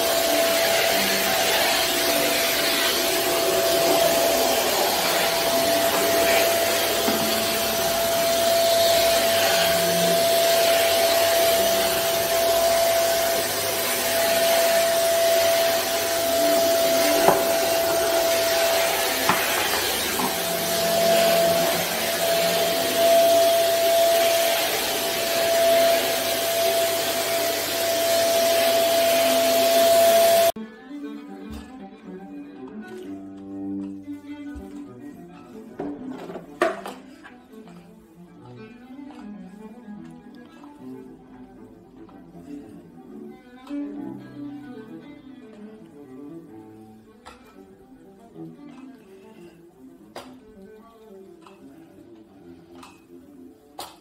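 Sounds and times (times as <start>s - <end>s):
stick vacuum cleaner running: 0.0s - 30.6s.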